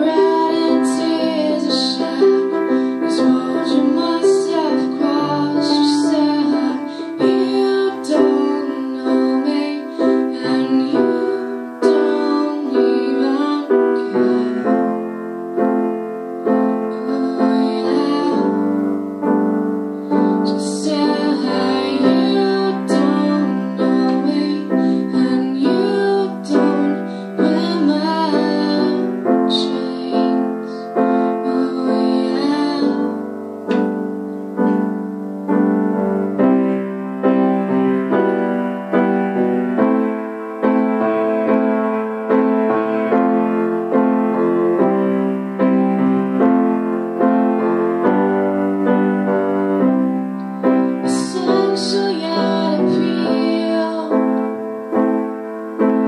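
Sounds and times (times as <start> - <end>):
woman singing into a microphone: 0.0 - 15.2, 16.8 - 19.1, 19.9 - 33.3, 50.6 - 54.6
grand piano playing: 0.0 - 56.0.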